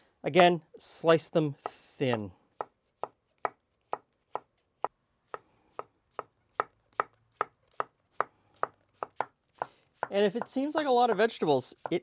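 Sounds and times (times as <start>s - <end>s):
knife tapping on wooden board: 9.0s - 12.0s.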